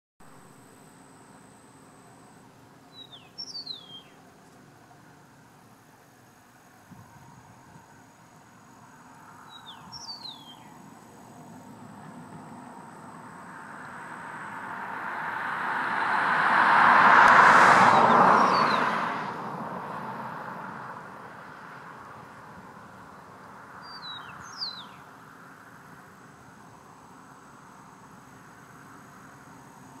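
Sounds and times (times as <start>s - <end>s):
vehicle passing: 8.6s - 25.9s.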